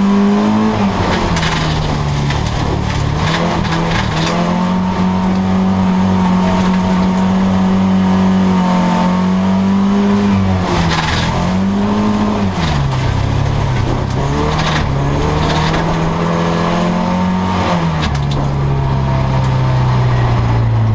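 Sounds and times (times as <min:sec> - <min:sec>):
race car engine revving: 0:00.0 - 0:20.9
sharp knocks and clatters: 0:01.0 - 0:04.7.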